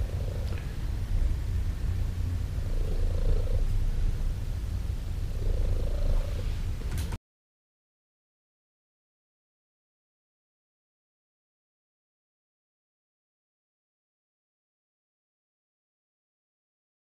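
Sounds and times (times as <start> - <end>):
cat purring: 0.0 - 7.1.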